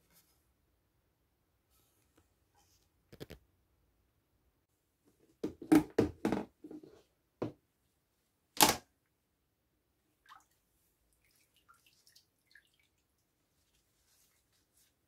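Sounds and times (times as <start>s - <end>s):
plastic tub knocking and clicking: 5.4s - 6.8s.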